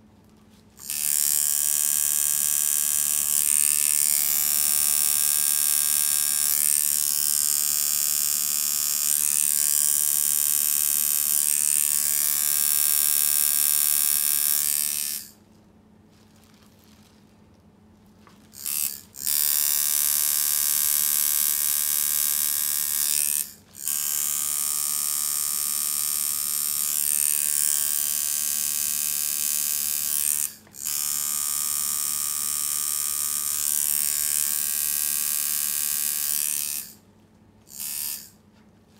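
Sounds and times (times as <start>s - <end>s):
tattoo machine buzzing: 0.8s - 15.4s, 18.5s - 37.0s, 37.7s - 38.4s.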